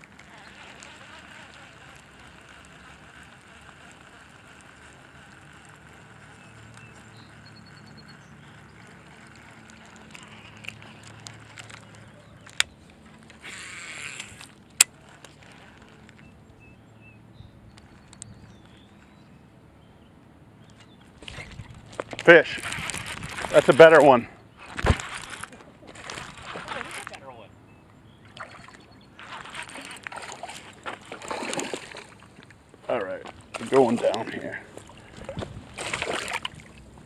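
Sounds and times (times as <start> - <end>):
fishing reel click: 0.0 - 16.3
fishing reel snapping shut: 0.0 - 16.3
fishing reel spool whirring: 0.0 - 19.5, 20.8 - 27.2, 28.3 - 37.0
faint ticks: 17.7 - 19.1.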